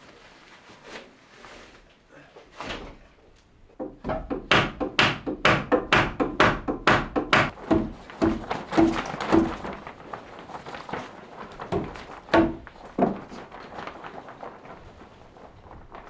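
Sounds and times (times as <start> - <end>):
footfalls on metal scaffold: 3.7 - 10.0, 11.5 - 13.6
timber board knocking: 3.8 - 9.6, 11.7 - 13.2.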